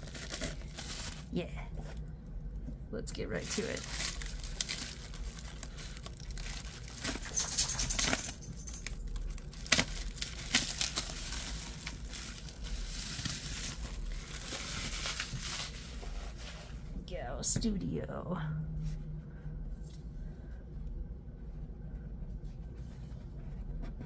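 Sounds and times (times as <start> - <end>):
packaging rustling and crinkling: 0.0 - 2.0, 3.3 - 16.9.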